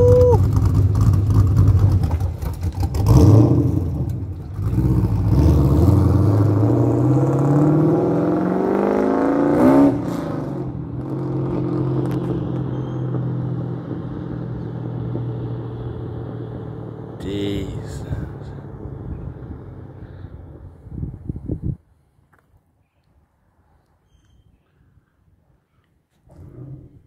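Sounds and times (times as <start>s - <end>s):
car engine revving and accelerating: 0.0s - 20.6s.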